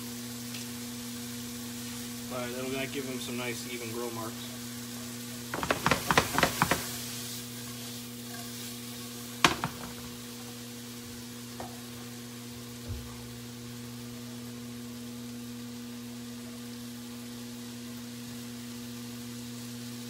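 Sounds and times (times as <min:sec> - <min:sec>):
chicken sizzling in a pan: 0:00.0 - 0:20.0
utensil knocking against pan: 0:05.5 - 0:06.9, 0:09.4 - 0:10.1.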